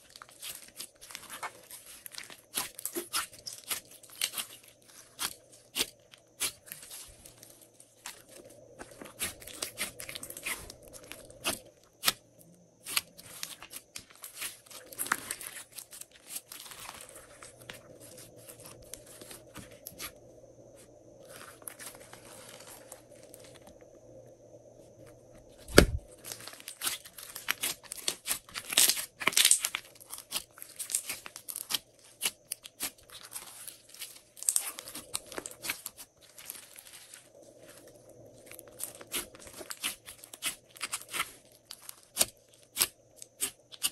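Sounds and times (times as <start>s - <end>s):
heavy thump: 25.7s - 26.0s.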